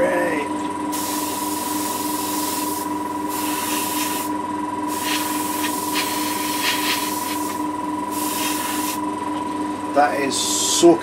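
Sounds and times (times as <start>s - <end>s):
steady motor hum: 0.0s - 11.0s
airbrush spraying hiss: 0.9s - 4.3s, 4.9s - 9.0s.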